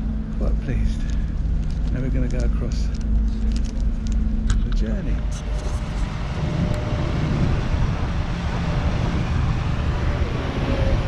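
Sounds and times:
ferry engines and wake rumbling: 0:00.0 - 0:11.0
wind buffeting microphone: 0:03.0 - 0:11.0.

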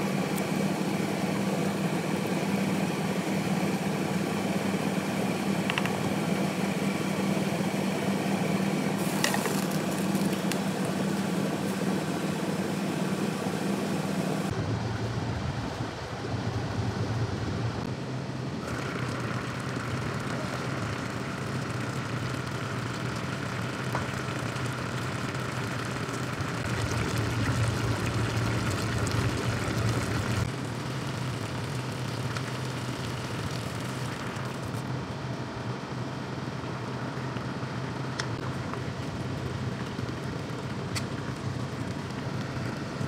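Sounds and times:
pot boiling and bubbling: 0:00.0 - 0:18.0, 0:18.6 - 0:43.0
low hum: 0:09.2 - 0:36.0.

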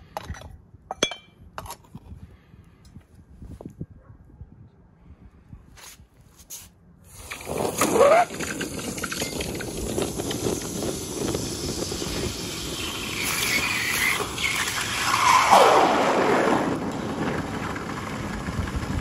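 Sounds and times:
hot metal hissing in water: 0:07.1 - 0:15.6
water boiling and bubbling: 0:07.1 - 0:16.9.

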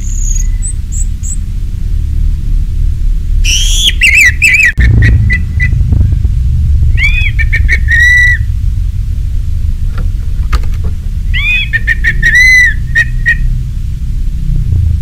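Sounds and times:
thrush singing whistled phrases: 0:00.0 - 0:01.4, 0:03.4 - 0:05.8, 0:06.9 - 0:08.5, 0:11.3 - 0:13.6
steady low rumble: 0:00.0 - 0:15.0.

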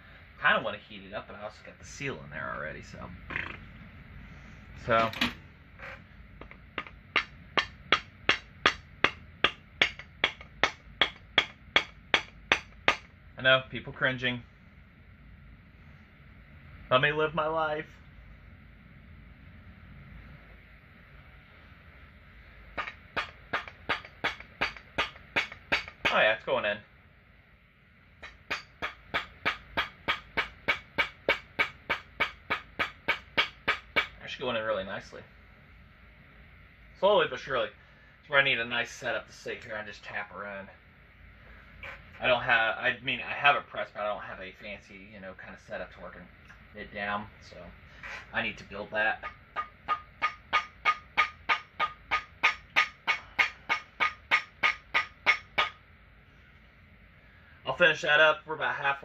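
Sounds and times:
mallet knocking on metal: 0:06.4 - 0:13.1, 0:22.8 - 0:26.3, 0:28.2 - 0:34.2, 0:49.2 - 0:55.8.

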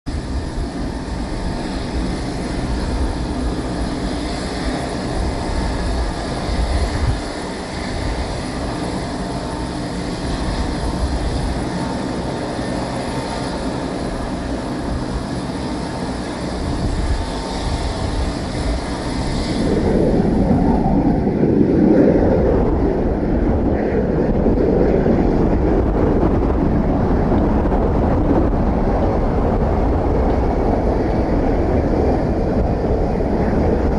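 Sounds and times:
jet engines rumbling: 0:00.0 - 0:33.9
strong wind buffeting microphone: 0:00.0 - 0:33.9
airport hum: 0:16.2 - 0:33.9.

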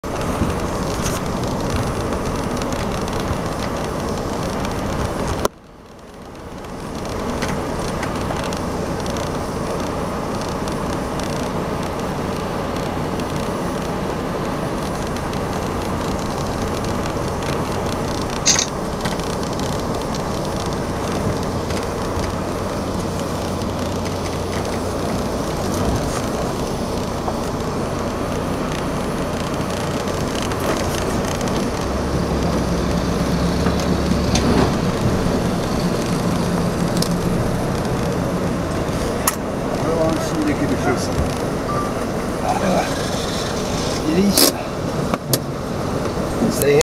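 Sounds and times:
ferry engines droning: 0:00.0 - 0:46.8.

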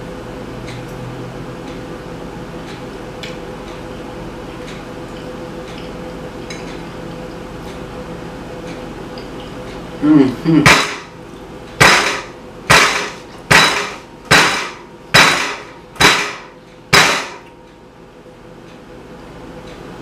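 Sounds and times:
person humming: 0:10.0 - 0:10.7
fist pounding glass tabletop: 0:10.7 - 0:11.1, 0:11.8 - 0:17.4.

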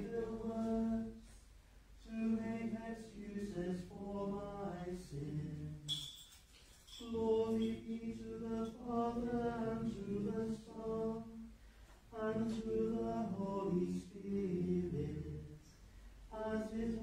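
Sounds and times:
voices chanting: 0:07.0 - 0:11.5.

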